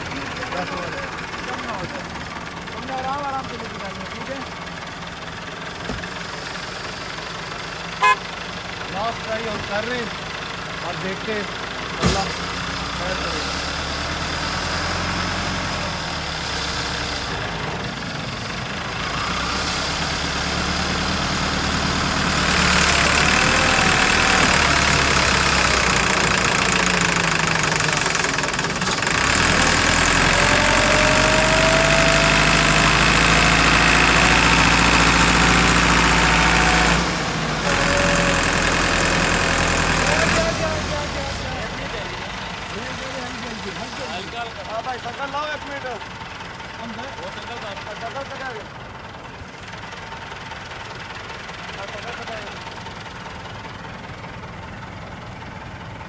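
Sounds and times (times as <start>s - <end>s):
tractor diesel engine straining: 0.0s - 56.0s
tyres churning sand: 18.7s - 46.0s.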